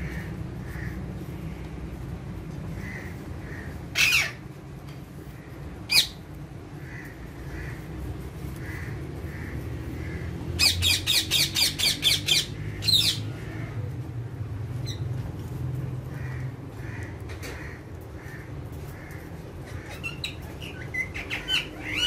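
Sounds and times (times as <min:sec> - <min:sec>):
parakeets squawking: 0:02.8 - 0:04.5, 0:05.4 - 0:06.2, 0:06.8 - 0:13.8, 0:16.1 - 0:22.0.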